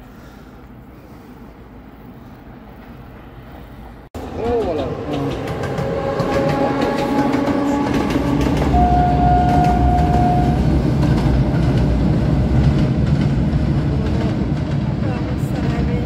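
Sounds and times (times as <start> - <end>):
train rumbling: 0.0 - 16.0
wheels clattering over rail joints: 4.3 - 16.0
steady high tone: 7.8 - 10.9.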